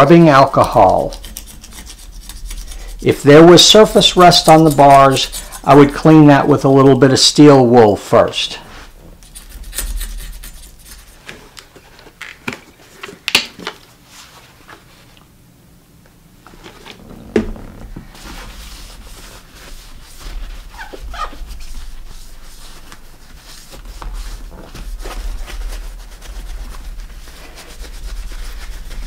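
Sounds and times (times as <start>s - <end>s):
paper towel rubbing metal: 0.0s - 7.4s, 8.1s - 11.2s, 16.7s - 29.0s.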